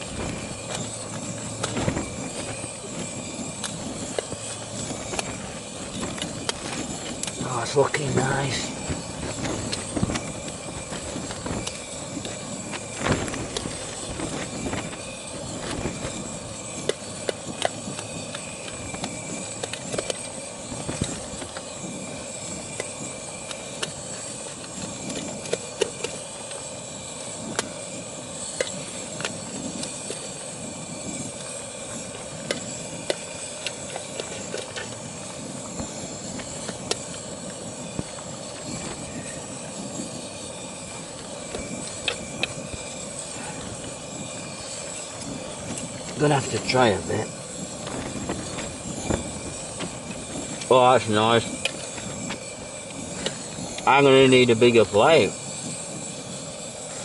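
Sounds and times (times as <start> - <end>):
gas burner hissing: 0.0 - 57.0.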